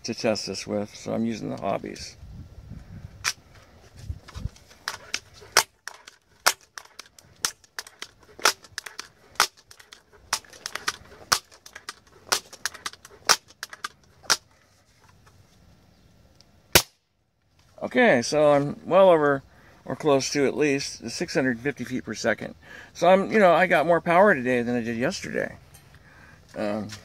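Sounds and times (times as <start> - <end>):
air rifle pump lever clacking: 4.8 - 14.4.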